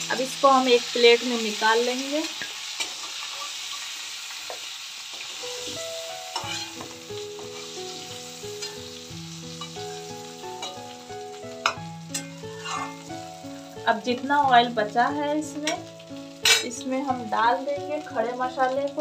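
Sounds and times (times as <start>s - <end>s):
prawns sizzling in hot oil: 0.0s - 19.0s
spatula scooping in pan: 5.1s - 9.8s, 11.6s - 13.2s.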